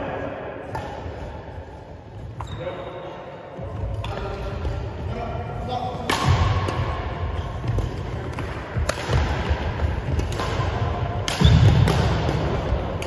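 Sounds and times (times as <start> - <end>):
racket striking shuttlecock: 6.0 - 13.0.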